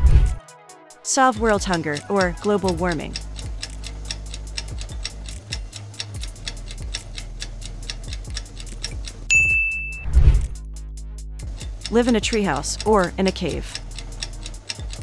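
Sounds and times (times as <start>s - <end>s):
clock ticking: 1.1s - 10.6s, 11.4s - 15.0s
short high beep: 9.3s - 10.2s.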